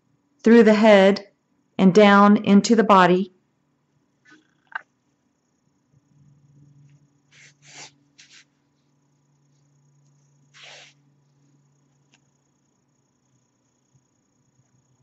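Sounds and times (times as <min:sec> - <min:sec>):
faint low hum: 0:00.0 - 0:15.0
soft swishes of yarn: 0:06.8 - 0:12.2.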